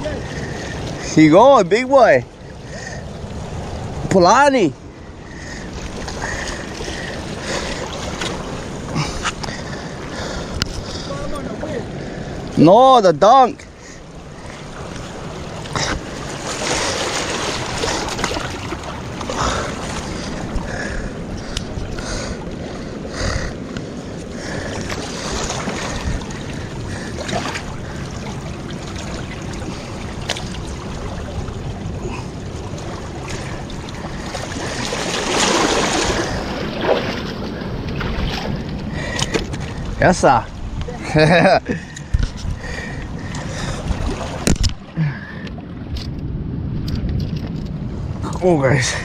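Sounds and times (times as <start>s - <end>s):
seawater splashing over rocks: 0.0s - 46.0s
wind on microphone: 14.1s - 49.0s.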